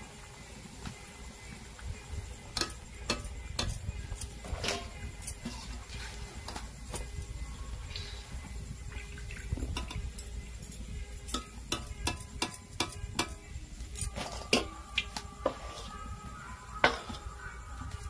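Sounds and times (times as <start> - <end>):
metal skimmer clinking on iron pan: 11.3 - 13.4.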